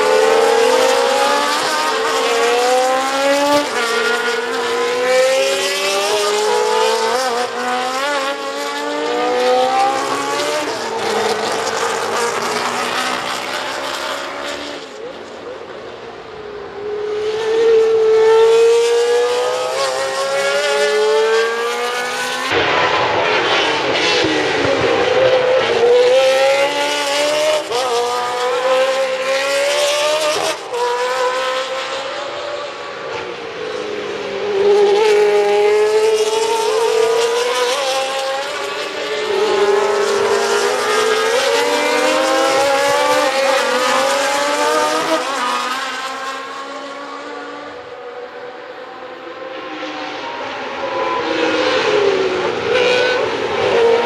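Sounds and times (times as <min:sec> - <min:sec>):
racing car engines passing: 0:00.0 - 0:54.0.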